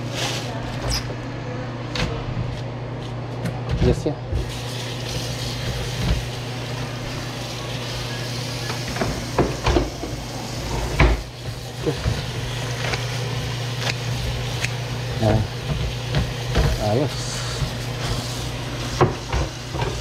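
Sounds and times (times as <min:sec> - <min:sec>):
tap water running into colander: 0:04.4 - 0:20.0.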